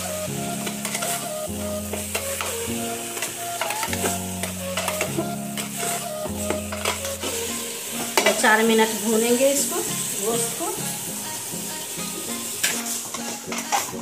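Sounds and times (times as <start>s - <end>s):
background music with held chords: 0.0s - 14.0s
meat sizzling in oil: 0.0s - 14.0s
ladle scraping and knocking pot: 6.5s - 7.4s.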